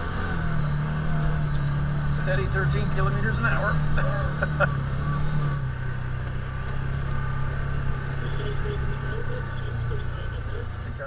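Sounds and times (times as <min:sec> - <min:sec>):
engine running under load: 0:00.0 - 0:11.0.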